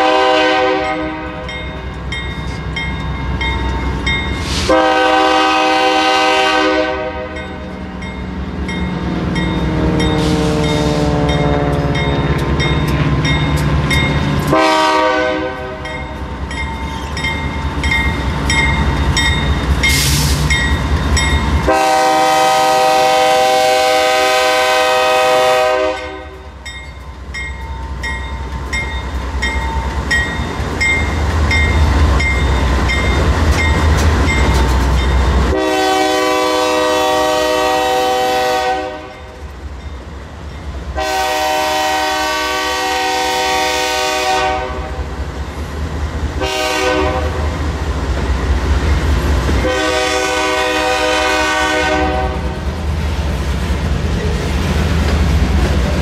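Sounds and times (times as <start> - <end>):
locomotive air horn blasts: 0.0 - 1.5, 4.4 - 7.5, 14.5 - 15.9, 21.6 - 26.4, 35.5 - 39.3, 41.0 - 45.0, 46.4 - 47.5, 49.6 - 52.6
train wheels clattering: 7.4 - 14.6, 15.6 - 23.3, 26.0 - 35.6, 52.5 - 56.0.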